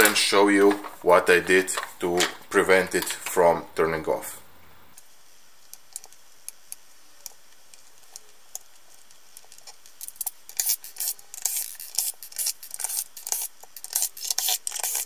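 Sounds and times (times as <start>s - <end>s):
screwdriver scraping screws: 10.0s - 15.0s.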